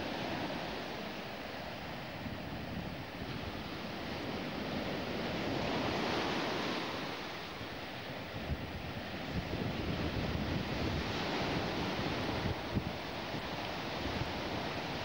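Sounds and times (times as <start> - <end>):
wind buffeting microphone: 8.2 - 15.0.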